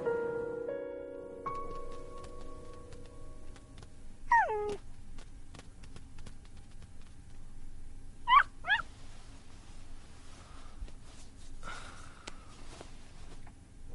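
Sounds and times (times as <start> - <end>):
kitten meowing: 4.3 - 4.8, 8.3 - 8.9.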